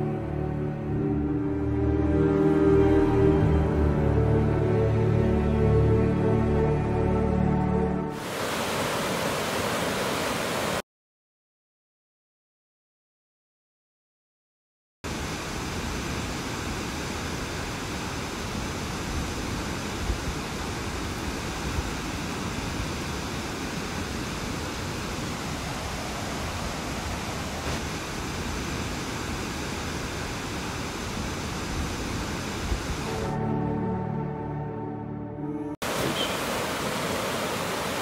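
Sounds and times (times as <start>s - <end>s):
waterfall rushing: 8.1s - 10.8s, 15.1s - 33.3s, 35.8s - 38.0s.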